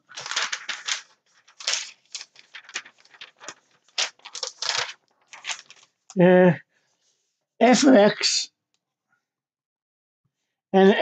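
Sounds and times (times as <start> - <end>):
paper rustling and crinkling: 0.0 - 6.2.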